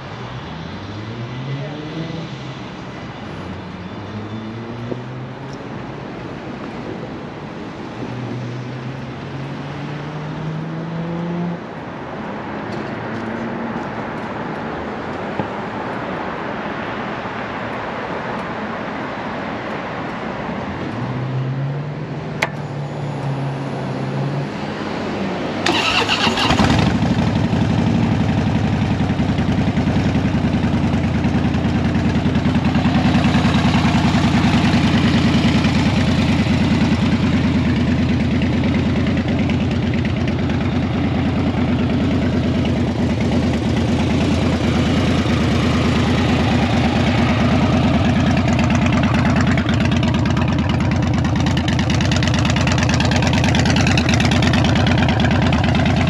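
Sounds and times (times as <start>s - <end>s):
motorcycle engine idling: 25.7s - 56.0s.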